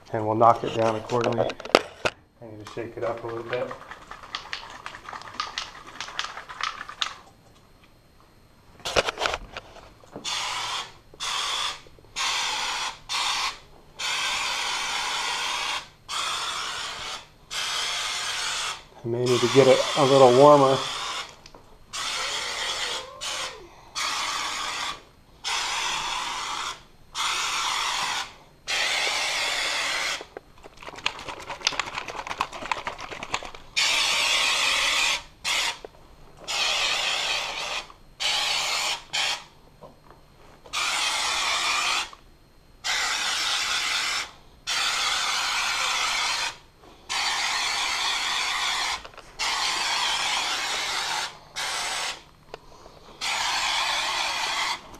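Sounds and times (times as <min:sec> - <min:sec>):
aerosol spray hissing: 0:22.0 - 0:30.2, 0:36.5 - 0:39.4, 0:42.9 - 0:52.2, 0:53.2 - 0:54.8
rapid clicking: 0:30.6 - 0:33.6.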